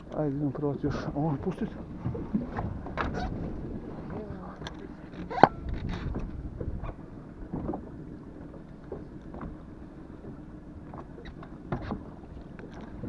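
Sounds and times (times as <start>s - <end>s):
wind rumbling on microphone: 0.8s - 13.0s.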